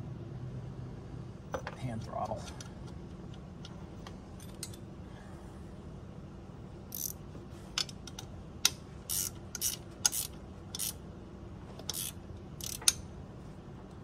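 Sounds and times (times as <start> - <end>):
hand tool clicking on metal: 11.8 - 13.0.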